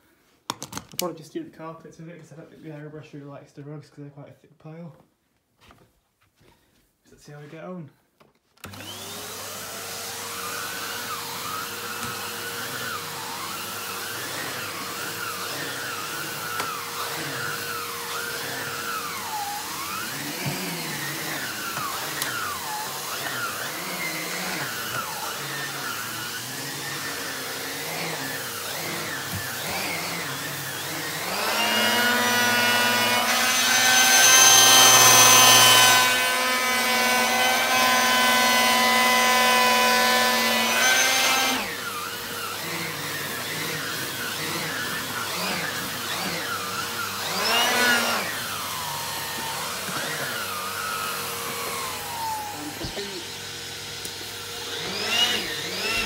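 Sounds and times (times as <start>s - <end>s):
vacuum cleaner running: 8.6s - 56.0s.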